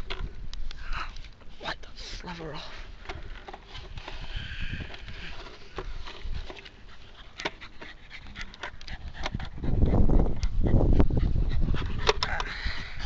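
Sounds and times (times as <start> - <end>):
clicks and rustles: 2.9 - 9.6
dog panting: 6.8 - 13.0.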